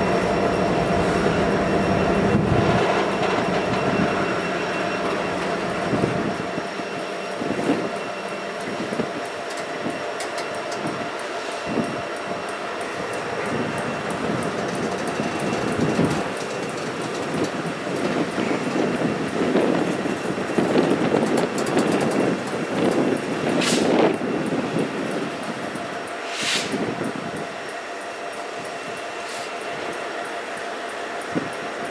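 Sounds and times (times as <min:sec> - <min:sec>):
steel wheels rumbling on rail: 0:00.0 - 0:31.9.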